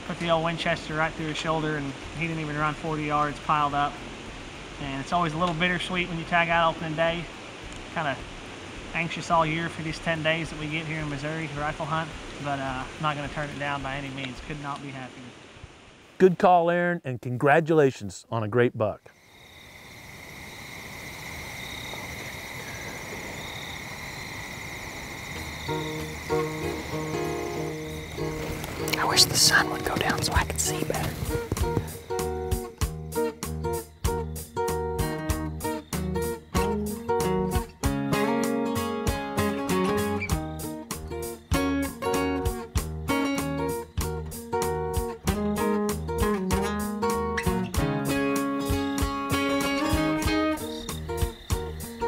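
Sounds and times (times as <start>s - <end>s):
insects chirping: 0.0s - 16.2s, 18.2s - 52.0s
music: 25.6s - 52.0s
strummed guitar chords: 25.7s - 29.2s, 31.3s - 52.0s.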